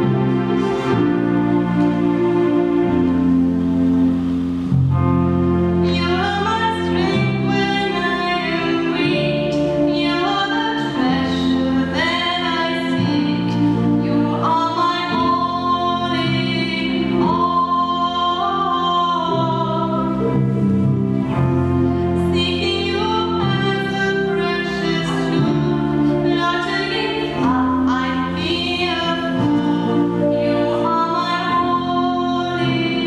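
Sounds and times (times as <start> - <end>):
sustained keyboard chords: 0.0 - 33.0
woman singing: 5.8 - 20.3, 22.2 - 33.0.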